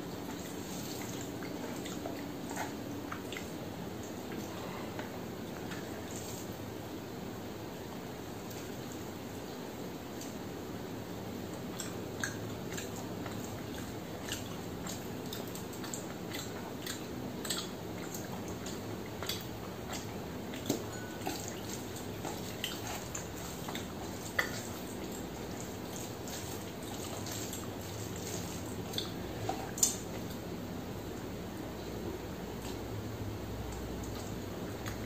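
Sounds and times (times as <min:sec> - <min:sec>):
wet squelches of food mixed by hand: 0:00.0 - 0:35.0
chewing and mouth clicks: 0:00.3 - 0:06.3, 0:11.5 - 0:30.5, 0:33.7 - 0:35.0.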